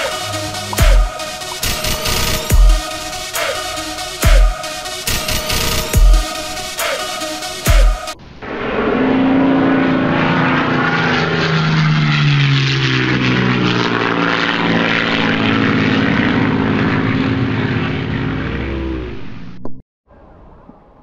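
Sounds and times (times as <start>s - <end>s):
motor running: 0.0s - 6.6s
loud rushing noise: 0.0s - 12.0s.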